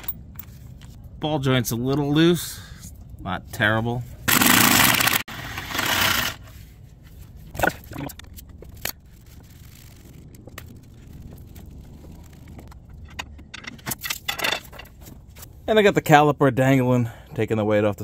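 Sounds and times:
metallic clicks and clanks of tools: 12.6s - 15.1s.

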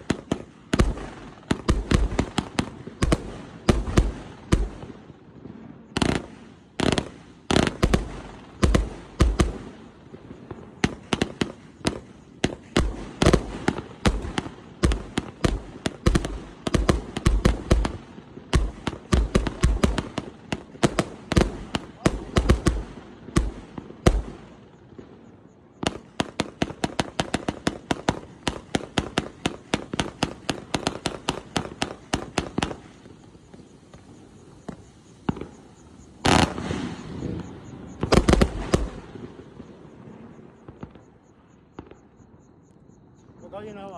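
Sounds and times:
fireworks launch thumps and bursts: 0.0s - 9.8s, 10.4s - 24.4s, 25.8s - 39.1s
lighter firework pops: 25.9s - 39.0s.

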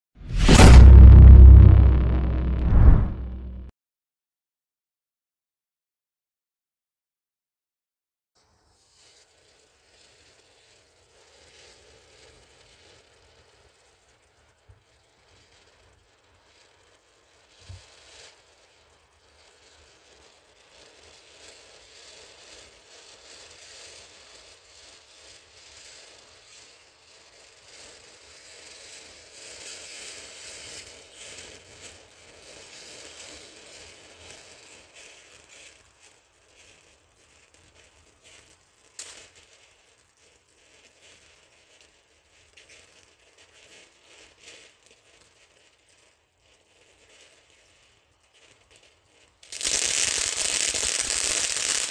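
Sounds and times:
sharp firework crack: 0.2s - 3.7s, 49.4s - 51.9s
firework fountain hissing crackle: 8.4s - 51.9s.

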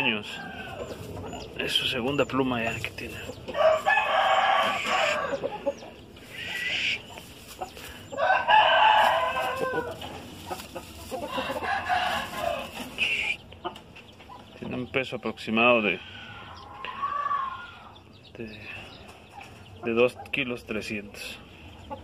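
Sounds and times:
roosters crowing: 0.0s - 13.4s, 16.0s - 18.1s.

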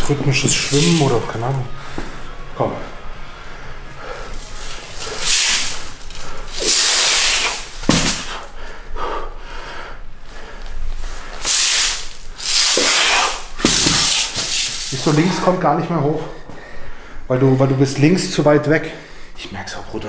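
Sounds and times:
man breathing forcefully: 1.7s - 14.9s, 16.3s - 17.3s.

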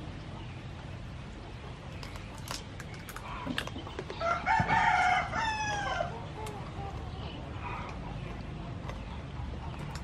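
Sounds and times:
rooster crowing: 4.2s - 6.2s.

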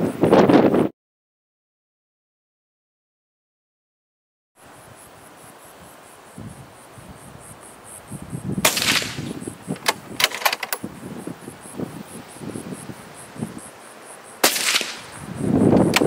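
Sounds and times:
suppressed rifle shot: 8.6s - 9.4s, 14.4s - 15.2s
quick sharp clicks: 8.7s - 10.8s, 14.4s - 15.2s, 15.8s - 16.0s.

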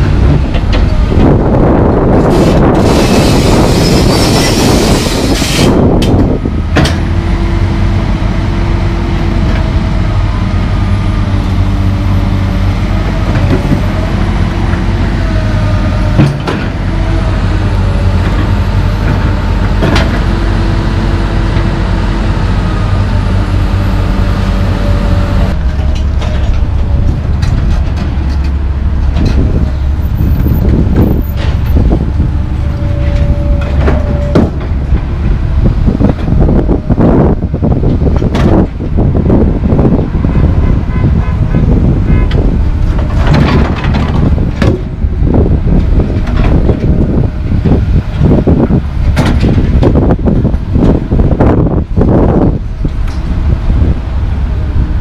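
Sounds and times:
excavator diesel engine running: 0.0s - 55.0s
hydraulic whine: 0.7s - 10.5s.

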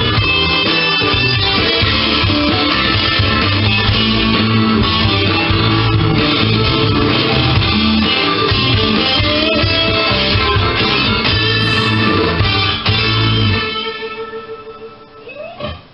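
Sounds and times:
sustained bass notes: 11.6s - 12.8s.

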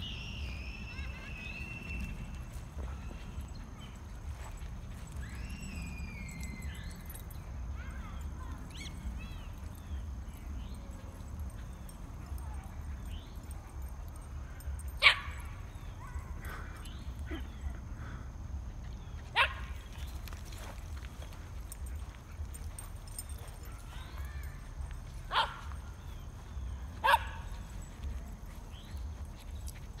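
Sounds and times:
dog barking: 19.4s - 19.6s, 25.3s - 25.7s, 27.0s - 27.5s.

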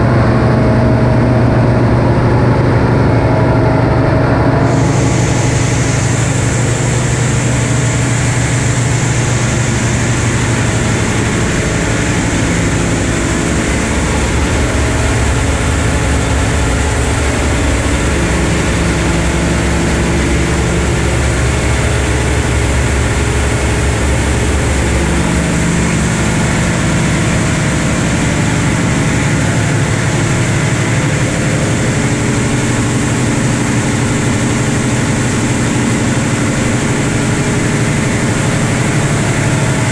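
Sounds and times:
engine room low hum: 0.0s - 39.9s
machinery hiss: 4.6s - 27.0s.

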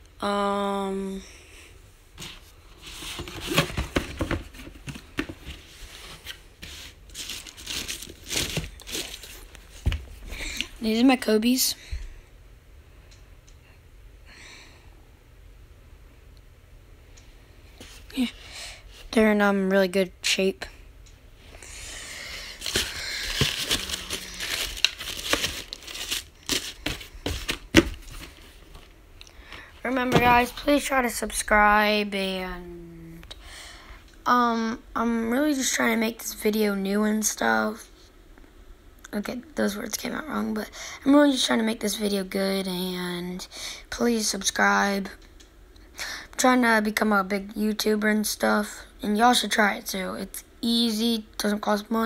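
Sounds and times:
tissue paper crinkling: 5.5s - 9.9s, 22.3s - 28.9s.

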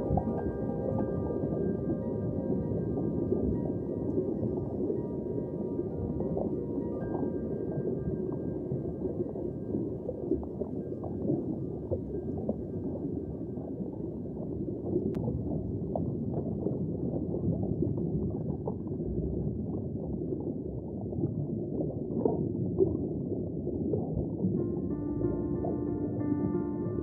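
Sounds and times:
music: 0.0s - 13.6s, 24.5s - 27.0s
small crackles and pops: 0.0s - 26.2s
muffled underwater rush: 0.0s - 27.0s.

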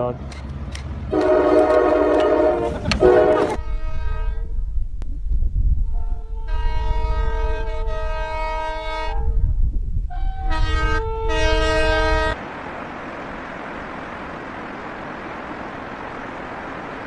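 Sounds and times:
locomotive engine rumble: 0.0s - 17.0s
locomotive air horn: 1.1s - 4.6s, 5.9s - 9.3s, 10.1s - 12.4s.

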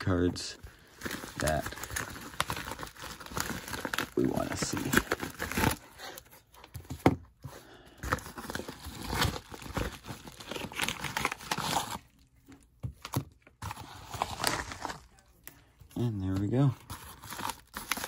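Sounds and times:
paper envelope rustling: 13.6s - 15.4s.

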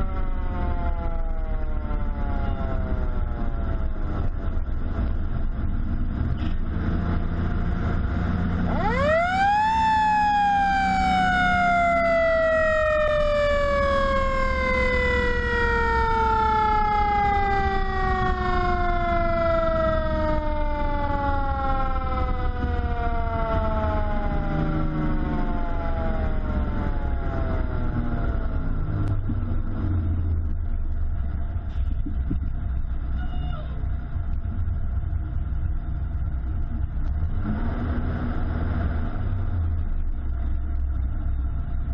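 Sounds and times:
fire truck mechanical siren wailing: 0.0s - 6.2s, 6.8s - 30.8s
truck engine and tyres droning: 0.0s - 41.9s.

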